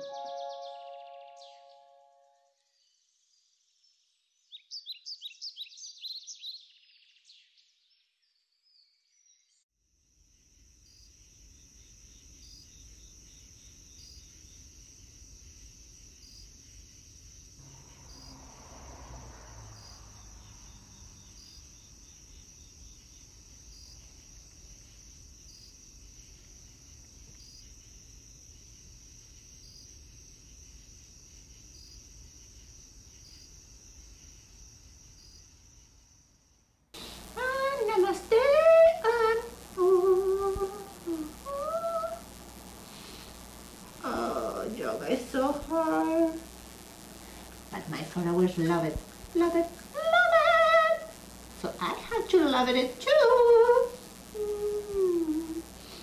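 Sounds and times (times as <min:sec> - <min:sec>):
crickets trilling: 0:00.0 - 0:02.2, 0:10.0 - 0:56.0
soft swell of noise: 0:17.6 - 0:21.3.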